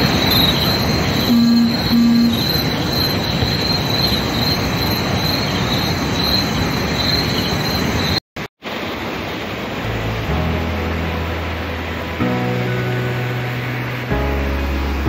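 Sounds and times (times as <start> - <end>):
insects chirping in pulsing trill: 0.0 - 8.2.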